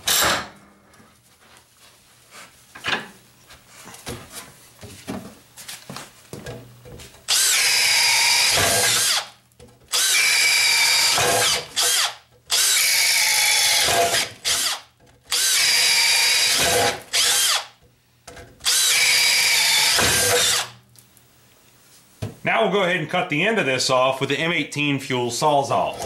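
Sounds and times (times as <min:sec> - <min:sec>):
drill boring holes in wood: 0:07.3 - 0:17.8, 0:18.6 - 0:20.8.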